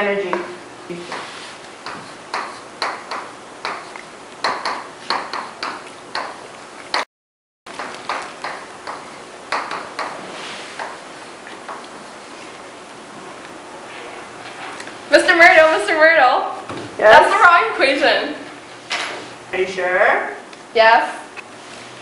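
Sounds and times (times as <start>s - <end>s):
chalk tapping on chalkboard: 1.0s - 7.0s, 7.8s - 11.9s.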